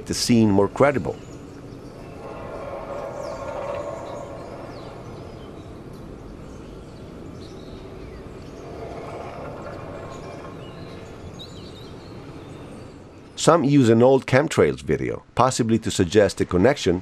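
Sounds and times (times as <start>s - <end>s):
low trumpet-like moaning groan: 2.2s - 5.6s.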